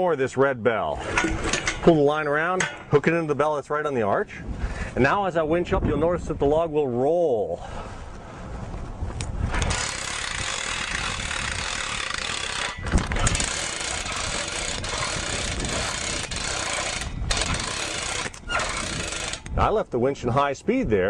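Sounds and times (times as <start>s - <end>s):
hand winch clattering: 9.5s - 19.6s.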